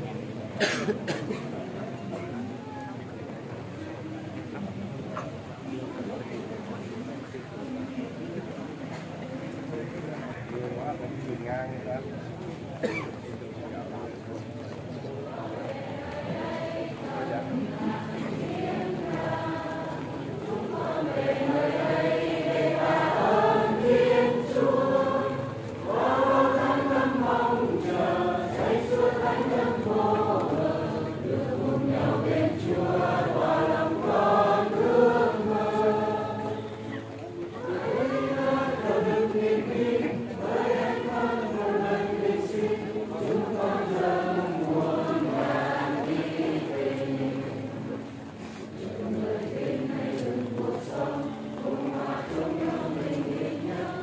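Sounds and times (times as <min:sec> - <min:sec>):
church choir singing a hymn: 0:15.1 - 0:54.0.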